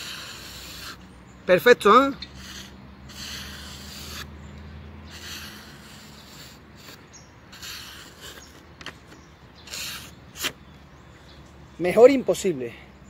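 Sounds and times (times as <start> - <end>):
knife blade scraping cut: 0.0 - 1.0, 2.2 - 4.3, 5.1 - 9.0.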